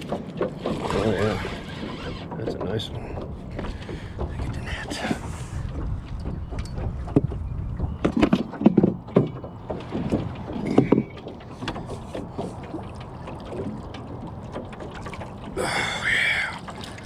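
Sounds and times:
knocks and clatter in aluminum boat: 0.0s - 17.0s
steady low rumble: 2.9s - 8.0s.

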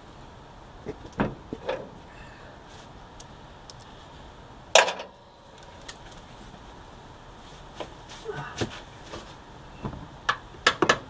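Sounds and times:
metal clank: 4.8s - 5.2s.

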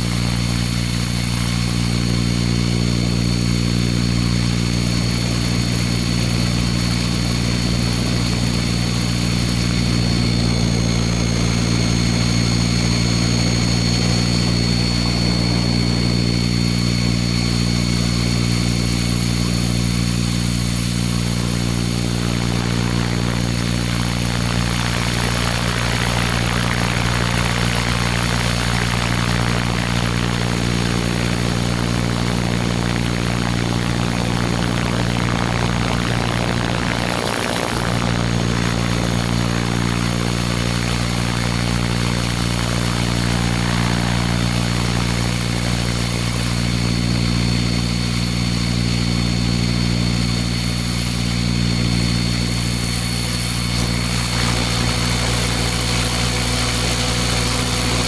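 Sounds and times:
model helicopter motor and rotor: 0.0s - 58.0s
wind rushing over microphone: 33.9s - 57.0s.

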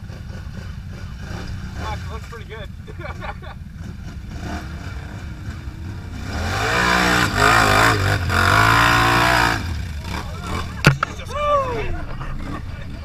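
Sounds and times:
quad engine revving: 0.0s - 2.4s, 3.2s - 13.0s.

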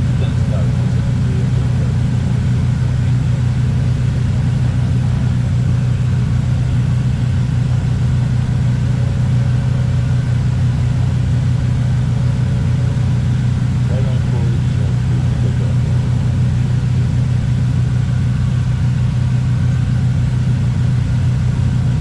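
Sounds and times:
aircraft engines droning in cockpit: 0.0s - 22.0s.

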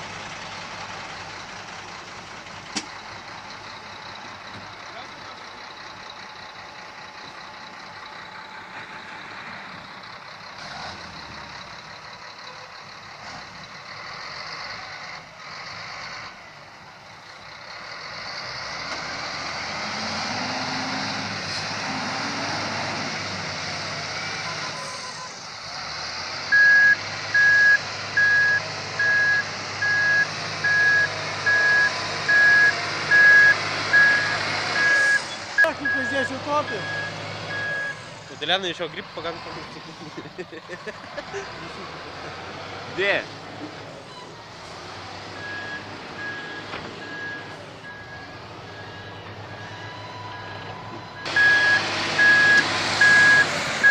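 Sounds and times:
heavy diesel engines under load: 0.0s - 53.9s
reversing alarm beeping: 26.5s - 38.1s, 45.4s - 53.9s.

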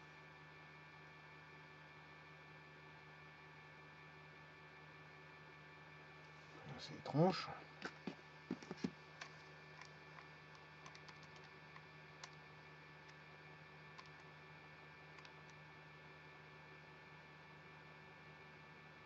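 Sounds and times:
low mains hum: 0.0s - 19.0s
computer keyboard keystrokes: 9.8s - 12.4s, 13.9s - 14.3s.

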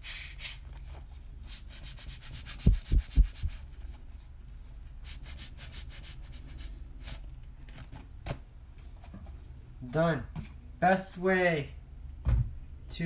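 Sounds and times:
hands rubbing rubber tire: 1.5s - 4.1s.

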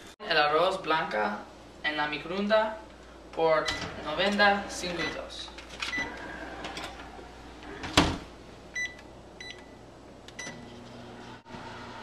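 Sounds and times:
microwave oven humming: 1.5s - 12.0s
keypad beeps: 8.8s - 9.7s.

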